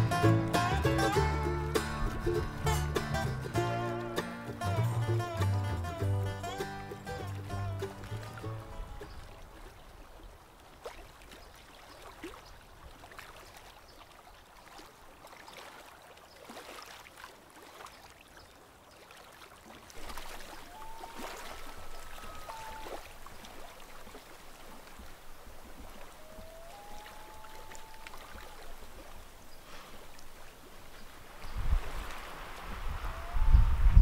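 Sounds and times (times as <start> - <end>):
water lapping and splashing: 5.8 - 33.8
dog wading in water: 9.1 - 31.2
long gliding pitched calls: 20.5 - 23.3, 26.0 - 29.0.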